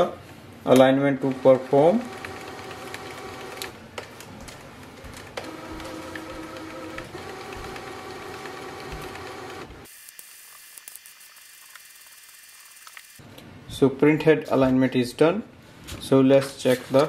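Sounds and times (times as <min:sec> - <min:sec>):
printer motors whirring: 0:01.2 - 0:03.8, 0:05.0 - 0:09.9
printer clicks: 0:05.4 - 0:09.7.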